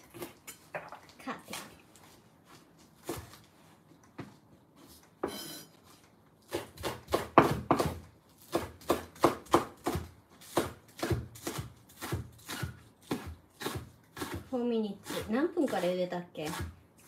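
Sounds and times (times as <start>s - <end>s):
knife chopping on wooden board: 6.5s - 16.8s.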